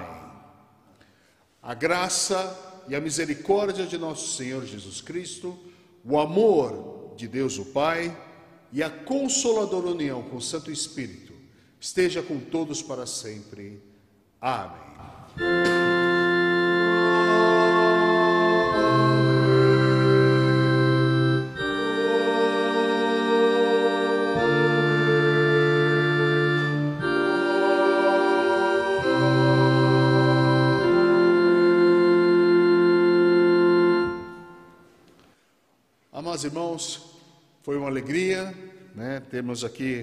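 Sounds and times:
organ playing held chords: 15.3 - 35.1.

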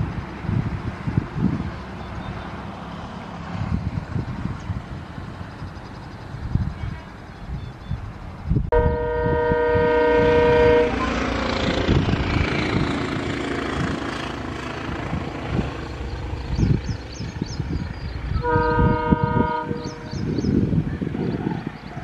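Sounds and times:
train passing rumble: 0.0 - 22.0
locomotive horn chord: 8.7 - 11.8, 18.3 - 20.2.

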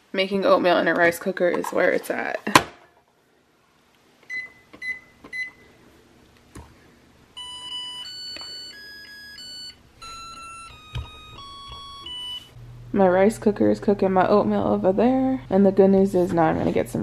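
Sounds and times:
short beeps: 7.4 - 12.6.

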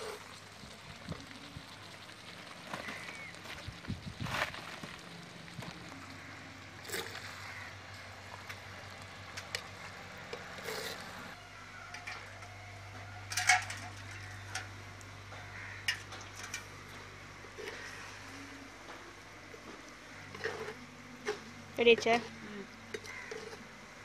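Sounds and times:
metal spoon scraping clay pot: 10.3 - 11.2, 20.3 - 21.4, 22.9 - 23.7.

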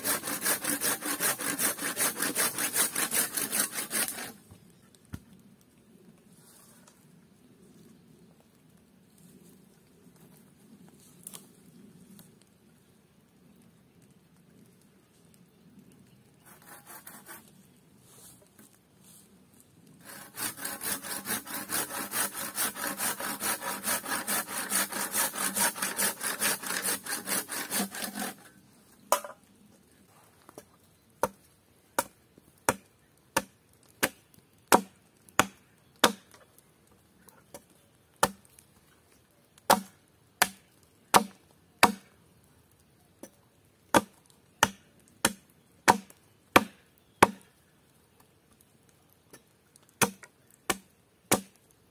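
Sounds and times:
hand saw cutting wood: 0.0 - 4.4, 16.4 - 17.5, 20.0 - 28.6
hatchet chopping wood: 32.0 - 36.4, 37.5 - 38.4, 39.7 - 42.1, 43.9 - 47.4, 50.0 - 51.6.

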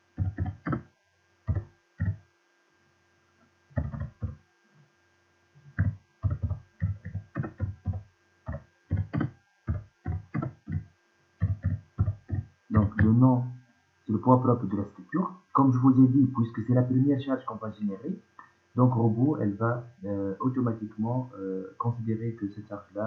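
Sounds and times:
typing on computer keyboard: 0.2 - 0.8, 3.8 - 4.4, 5.8 - 10.8.

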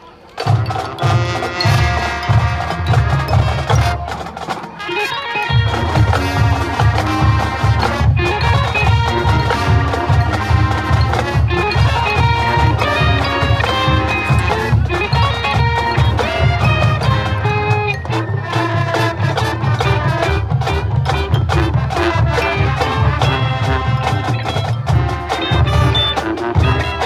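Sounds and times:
marching band playing rock tune: 0.0 - 27.0
drum hits: 0.4 - 4.8.

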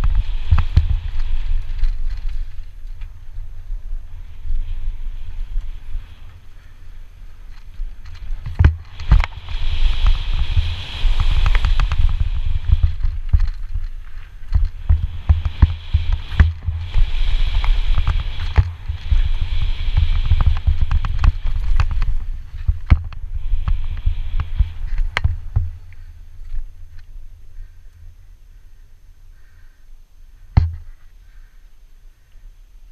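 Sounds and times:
bike knocking and rattling: 0.0 - 3.6, 5.6 - 27.1, 30.5 - 31.1
wind rumble on microphone: 0.0 - 28.4.

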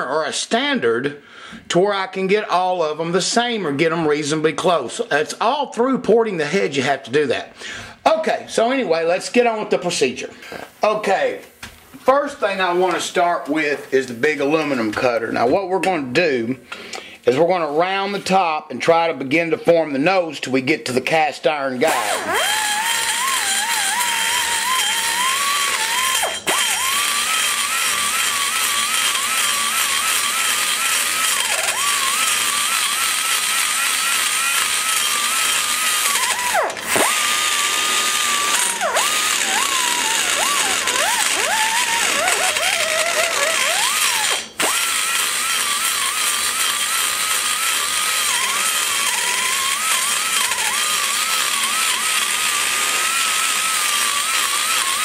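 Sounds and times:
die grinder whining cutting metal: 21.8 - 55.0.

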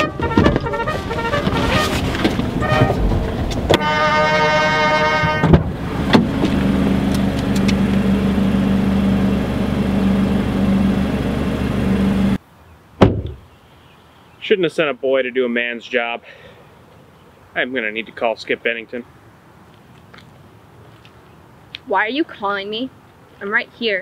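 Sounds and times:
car horn blast: 0.0 - 3.1, 3.7 - 5.7
low engine hum: 0.0 - 12.4.

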